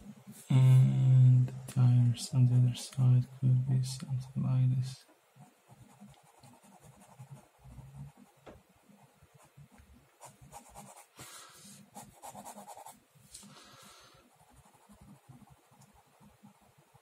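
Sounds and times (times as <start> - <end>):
pen scratching on paper: 5.4 - 8.4, 10.2 - 11.1, 12.0 - 13.0, 14.4 - 17.0.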